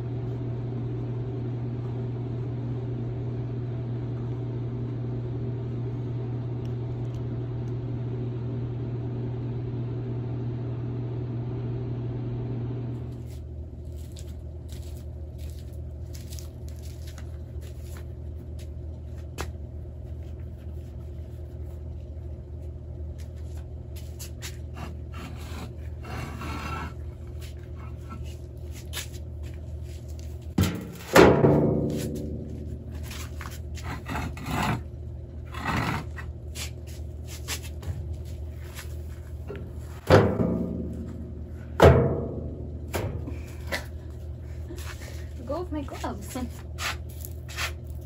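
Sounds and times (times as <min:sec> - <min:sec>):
hollow thud in plastic wheelbarrow: 0:30.6 - 0:32.5.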